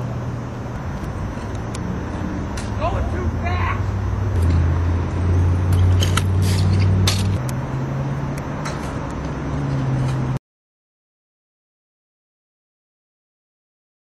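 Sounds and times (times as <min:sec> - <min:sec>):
low engine-like hum: 0:00.0 - 0:10.4
scooter wheels rolling on concrete: 0:00.0 - 0:10.4.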